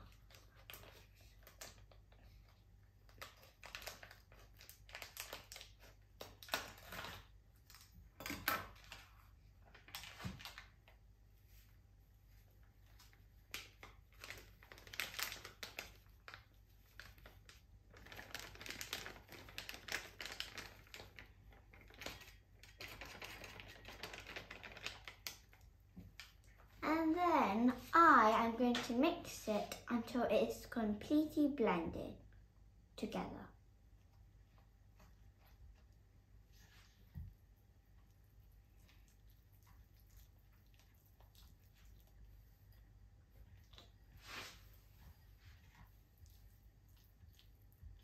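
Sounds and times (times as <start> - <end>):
plastic packet crinkling: 3.1 - 7.9, 13.0 - 27.0.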